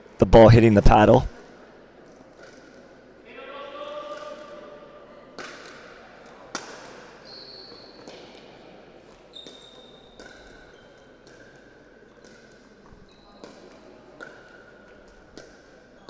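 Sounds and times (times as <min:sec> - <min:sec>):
shoes squeaking on floor: 0:07.2 - 0:08.3, 0:09.2 - 0:11.5, 0:12.1 - 0:14.9.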